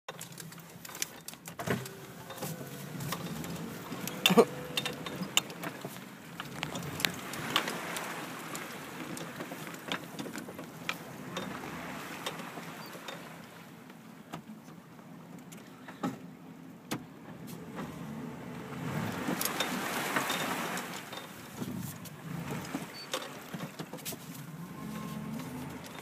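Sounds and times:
water sloshing against vehicle: 0:00.1 - 0:26.0.

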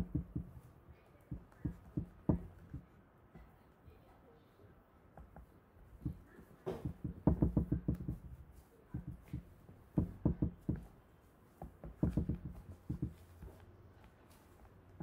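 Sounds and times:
spatula knocking plastic tub: 0:00.0 - 0:00.7, 0:01.3 - 0:02.9, 0:05.2 - 0:08.4, 0:09.0 - 0:10.9, 0:11.6 - 0:13.4.

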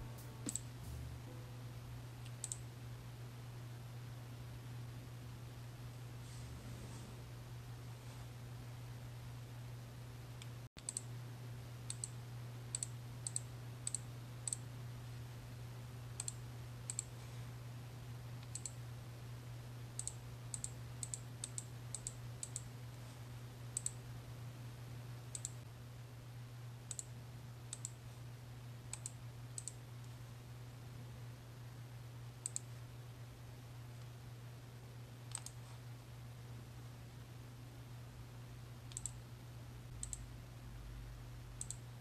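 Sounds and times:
steady low hum: 0:00.0 - 0:42.0
computer mouse clicking: 0:00.4 - 0:00.6, 0:02.2 - 0:02.6, 0:10.4 - 0:11.1, 0:11.9 - 0:14.6, 0:16.2 - 0:17.1, 0:18.4 - 0:18.8, 0:20.0 - 0:22.7, 0:23.8 - 0:24.0, 0:25.3 - 0:25.6, 0:26.9 - 0:27.1, 0:27.7 - 0:28.0, 0:28.9 - 0:29.8, 0:32.4 - 0:32.7, 0:35.3 - 0:35.6, 0:38.9 - 0:39.2, 0:40.0 - 0:40.2, 0:41.6 - 0:41.9.

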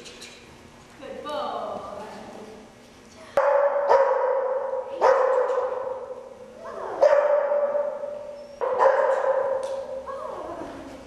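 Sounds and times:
dog barking in echoing hall: 0:03.4 - 0:10.1.

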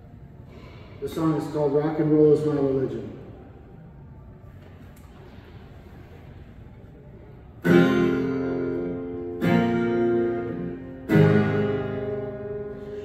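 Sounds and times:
guitar chords ringing out: 0:07.6 - 0:13.0.

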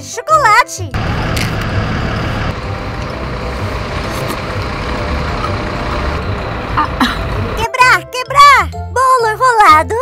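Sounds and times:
street traffic rumble: 0:00.9 - 0:08.0
heavy vehicle engine running: 0:01.0 - 0:07.8.

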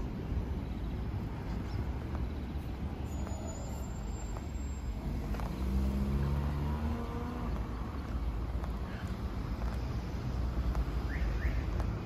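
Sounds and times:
low traffic rumble: 0:00.0 - 0:12.0
car driving past: 0:03.3 - 0:10.6.

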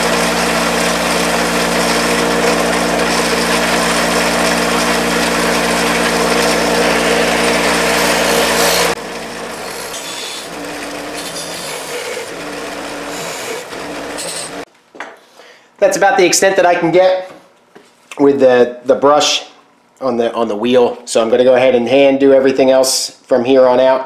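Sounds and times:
bench grinder motor hum: 0:00.0 - 0:14.7
wire wheel brushing metal: 0:00.0 - 0:14.7.

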